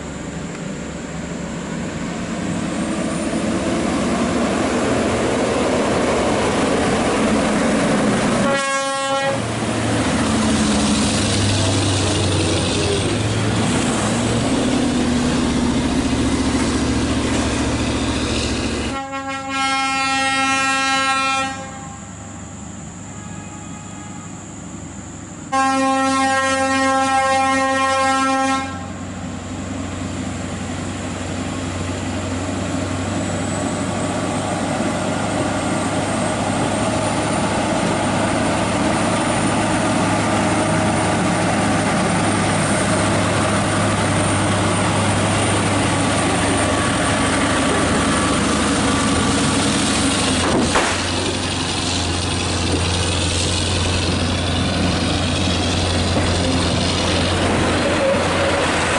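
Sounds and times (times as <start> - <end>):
diesel truck labouring uphill: 0.0 - 21.7, 24.0 - 58.9
air horn: 8.4 - 9.5, 18.9 - 22.3, 23.1 - 24.4, 25.5 - 29.0.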